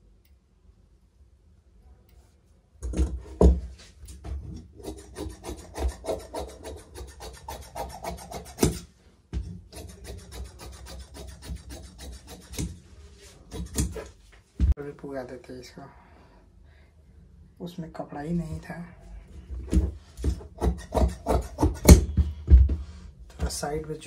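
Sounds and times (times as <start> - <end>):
shears snipping fabric: 9.7 - 12.8, 13.4 - 14.2.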